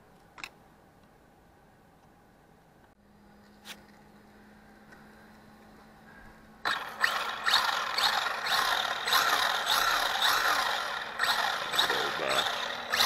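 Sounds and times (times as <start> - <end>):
electric rc car motor whining: 6.6 - 13.0.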